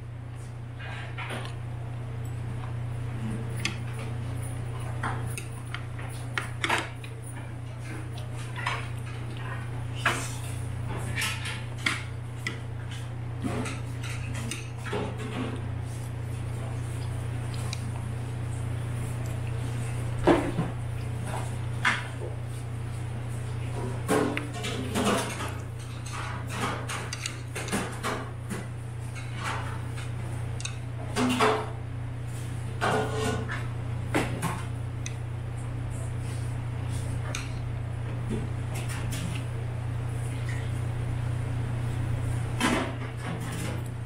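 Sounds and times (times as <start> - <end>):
steady low hum: 0.0 - 44.0
chopsticks and dishes clinking: 24.3 - 29.3.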